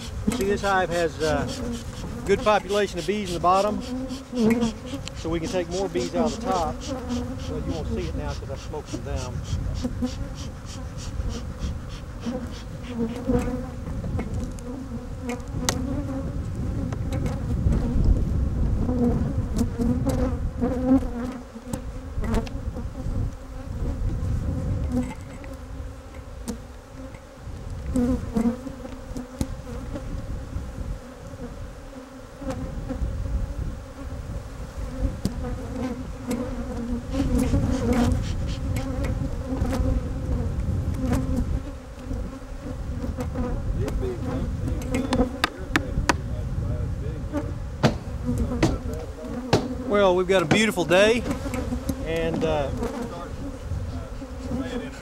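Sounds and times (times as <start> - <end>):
hive frames knocking: 0.0 - 10.3, 44.7 - 46.2, 47.8 - 53.1
honeybees buzzing: 0.0 - 46.6, 47.2 - 55.0.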